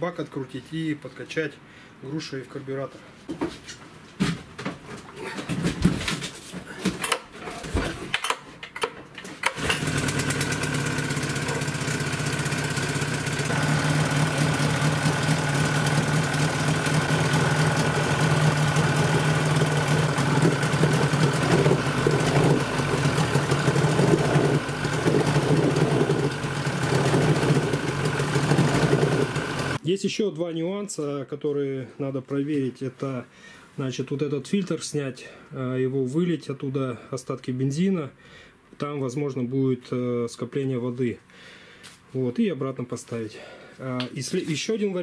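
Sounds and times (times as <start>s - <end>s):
outboard motor starting and idling: 9.4s - 29.8s.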